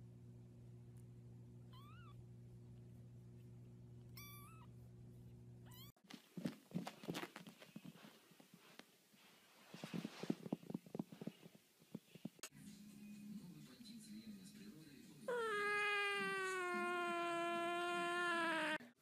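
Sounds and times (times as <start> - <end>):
steady low hum: 0.0 - 15.3
kitten mewing: 15.3 - 18.8.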